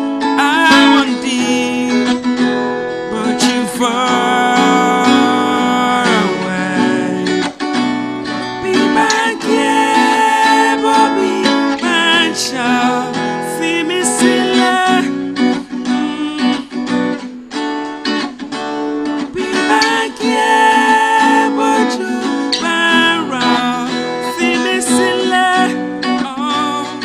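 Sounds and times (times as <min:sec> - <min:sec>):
guitar accompaniment: 0:00.0 - 0:27.0
person singing long wavering notes: 0:00.5 - 0:02.2, 0:02.8 - 0:07.5, 0:08.6 - 0:16.7, 0:19.4 - 0:25.7.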